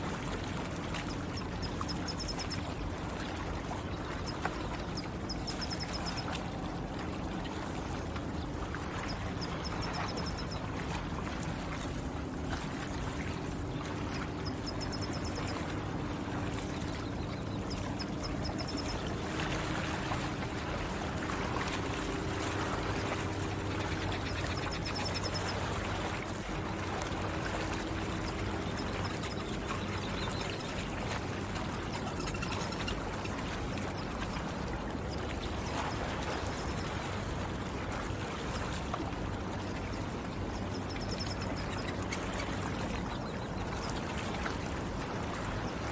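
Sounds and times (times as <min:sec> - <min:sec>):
lake water lapping: 0:00.0 - 0:45.9.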